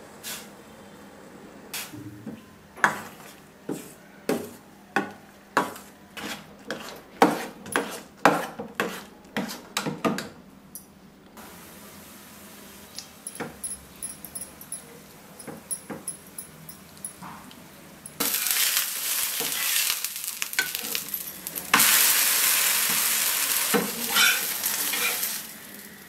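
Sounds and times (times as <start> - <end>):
steel spoon scraping a pan: 5.6 - 9.7, 18.2 - 26.0.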